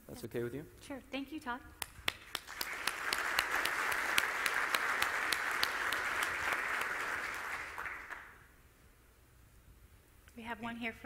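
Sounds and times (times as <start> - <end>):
audience applauding: 2.1 - 8.4.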